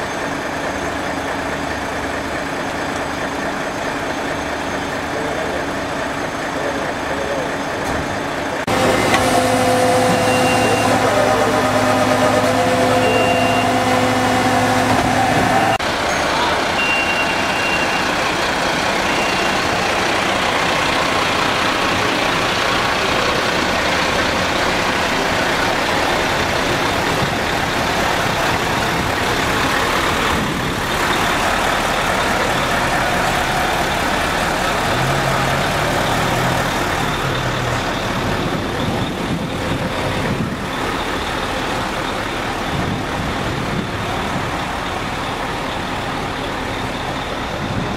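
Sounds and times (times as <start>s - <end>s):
diesel truck engine running: 0.0s - 47.9s
truck hydraulics humming: 2.5s - 47.9s
short high beeps: 10.1s - 11.1s, 12.8s - 14.1s, 15.6s - 18.2s.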